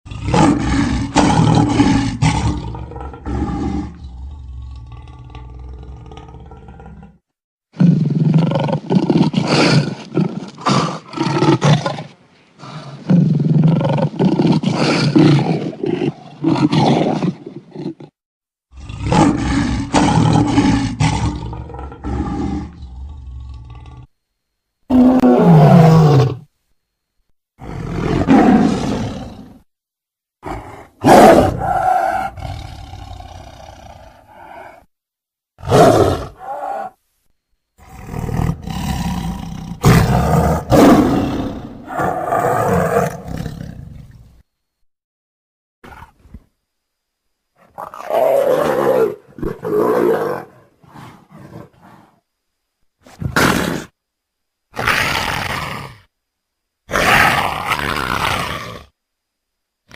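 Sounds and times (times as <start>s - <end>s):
lions roaring and growling: 0.1s - 7.2s, 7.8s - 24.1s, 27.6s - 29.7s, 30.4s - 34.9s, 35.6s - 37.0s, 37.8s - 44.2s, 47.6s - 52.2s.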